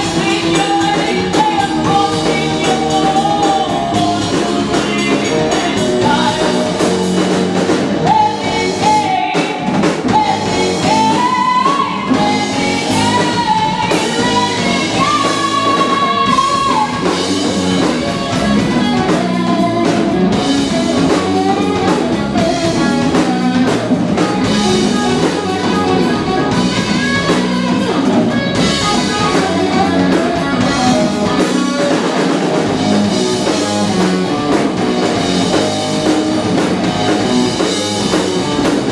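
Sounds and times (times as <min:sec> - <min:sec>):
woman singing: 0:00.0 - 0:07.1, 0:08.0 - 0:31.9
rock band playing: 0:00.0 - 0:38.9.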